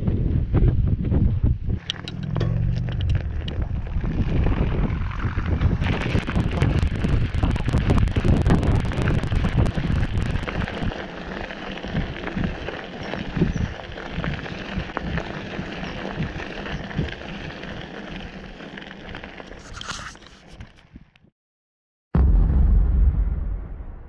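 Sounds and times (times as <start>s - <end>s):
wind buffeting microphone: 0.0s - 11.0s
bicycle tyres crunching gravel: 1.8s - 20.9s.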